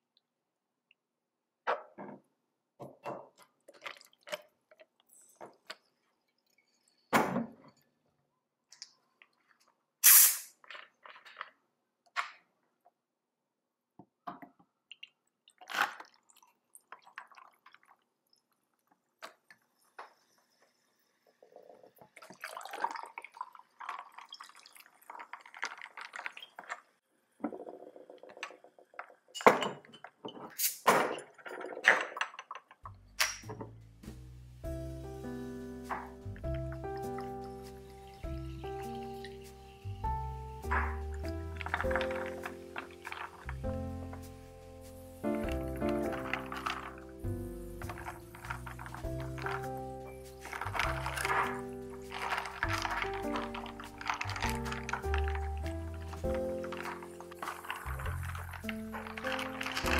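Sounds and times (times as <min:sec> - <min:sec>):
liquid pouring over ice: 0:15.5 - 0:27.0, 0:35.9 - 0:44.2, 0:45.2 - 0:59.9
ice clinking against glass: 0:47.8 - 0:59.9.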